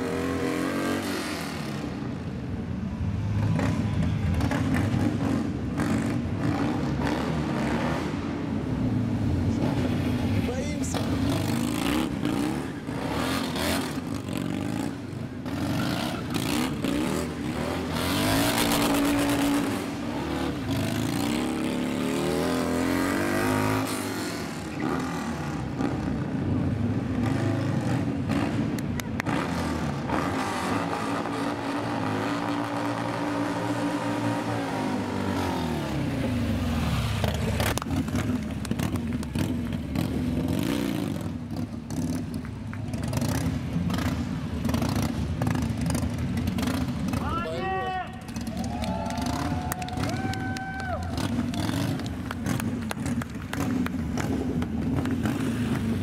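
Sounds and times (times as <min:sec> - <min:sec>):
motorcycle engine revving hard: 0:03.5 - 0:08.3, 0:11.0 - 0:42.3.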